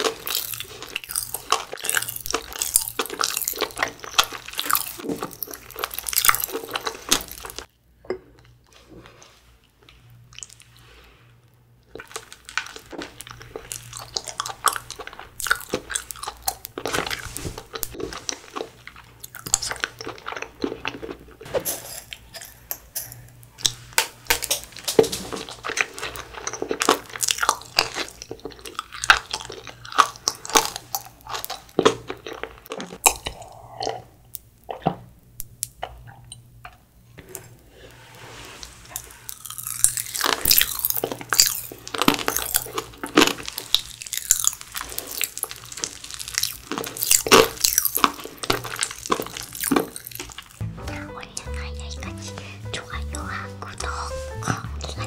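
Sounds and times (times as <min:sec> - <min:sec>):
chewing sticky rice cake: 0:00.0 - 0:07.7, 0:11.8 - 0:21.5, 0:23.6 - 0:38.0, 0:38.6 - 0:50.6.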